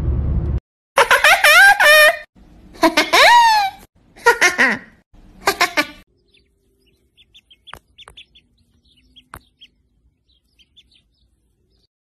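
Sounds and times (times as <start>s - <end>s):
ducklings peeping: 5.3s - 11.9s.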